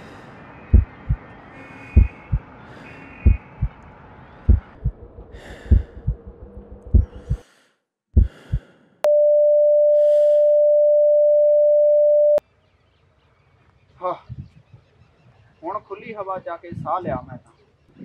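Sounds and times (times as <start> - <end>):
heartbeat thumps: 0.7 - 1.2, 2.0 - 2.5, 3.2 - 3.8, 4.5 - 5.0, 5.6 - 7.4, 8.2 - 8.6
heart monitor flatline tone: 3.2 - 3.8
breathy puffs: 4.4 - 9.0.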